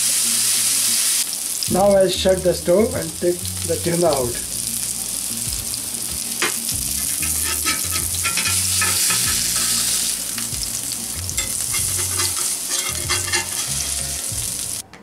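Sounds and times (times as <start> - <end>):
fish sizzling in oil: 0.0 - 14.8
metal spatula scraping pan: 7.0 - 10.4, 11.4 - 14.4.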